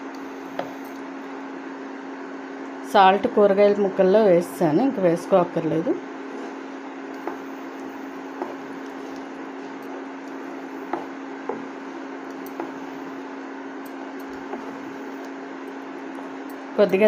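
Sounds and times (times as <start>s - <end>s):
induction cooktop hum: 0.0s - 17.0s
spatula stirring thick mixture: 14.4s - 15.3s.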